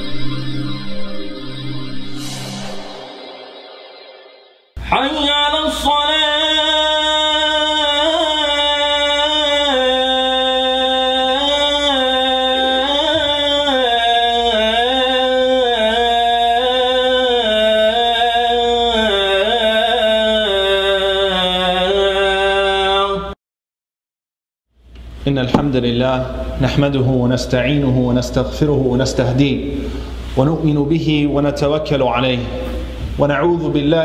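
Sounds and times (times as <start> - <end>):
person chanting: 4.8 - 23.4, 27.4 - 29.6, 31.9 - 34.0.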